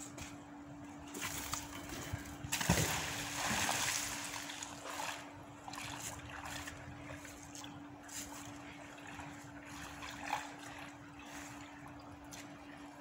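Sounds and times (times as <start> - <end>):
faint steady hum: 0.0 - 13.0
magnet splashing into water: 2.5 - 4.6.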